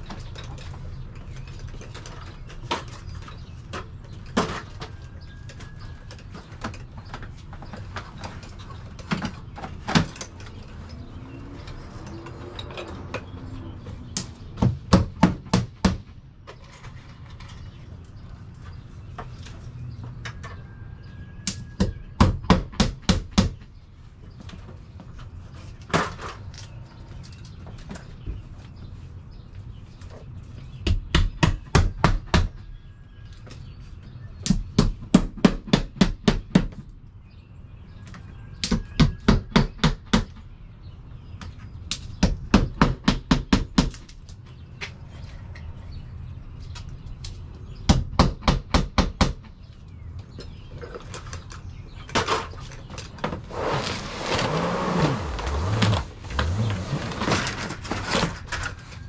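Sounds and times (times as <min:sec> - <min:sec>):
siding rustling and scraping: 0:00.0 - 0:15.0, 0:15.7 - 0:21.2, 0:23.5 - 0:30.8, 0:49.6 - 0:59.0.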